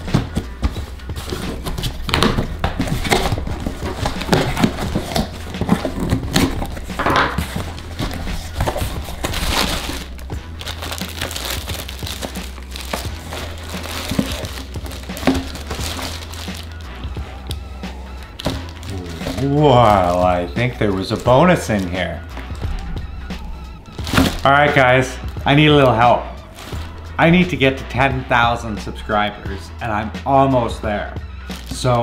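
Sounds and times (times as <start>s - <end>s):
plastic and bubble wrap crinkling: 0.0s - 17.6s, 18.2s - 22.8s, 23.8s - 27.3s, 31.5s - 32.0s
cardboard box being opened: 0.1s - 16.8s, 18.2s - 22.6s, 24.0s - 24.5s, 26.5s - 27.0s.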